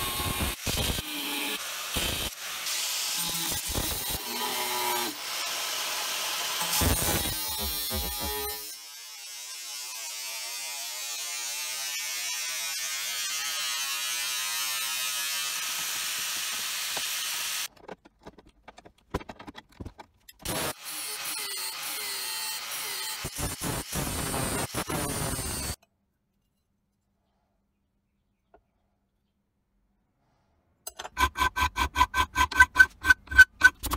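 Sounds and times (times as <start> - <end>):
angle grinder cutting metal: 0.0 - 17.7, 20.4 - 25.8.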